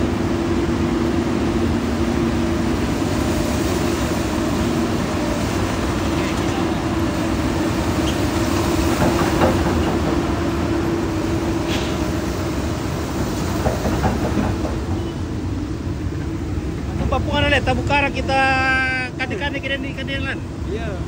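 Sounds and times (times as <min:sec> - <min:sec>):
diesel engine droning: 0:00.0 - 0:13.6
steel crawler tracks clattering: 0:00.0 - 0:20.2.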